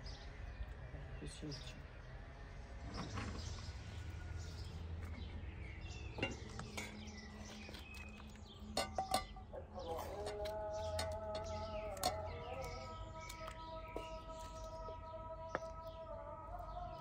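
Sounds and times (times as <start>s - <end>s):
birds chirping faintly: 0.0s - 17.0s
pot lid clinking: 8.8s - 9.4s.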